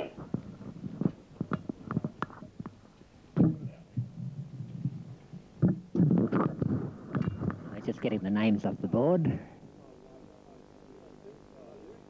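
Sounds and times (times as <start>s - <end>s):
muffled voices: 6.0s - 12.0s.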